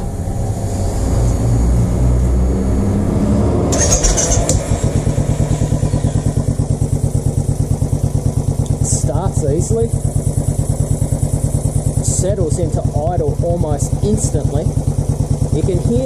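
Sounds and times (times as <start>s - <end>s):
motorcycle starter cranking: 3.7s - 5.0s
motorcycle engine fast idle: 3.7s - 16.0s.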